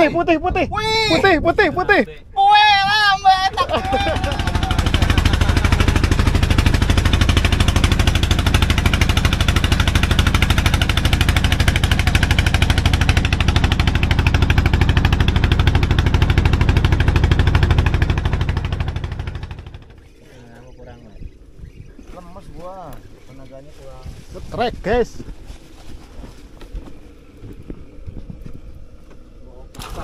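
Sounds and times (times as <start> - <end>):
boat engine knocking: 3.5 - 20.0.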